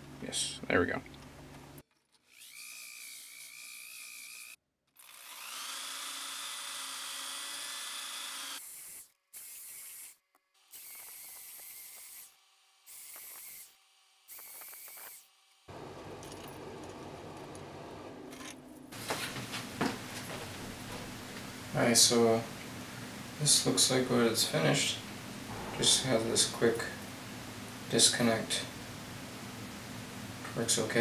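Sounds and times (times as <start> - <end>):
rotary tool whining on metal: 1.9 - 15.3
dull steady noise: 23.6 - 31.0.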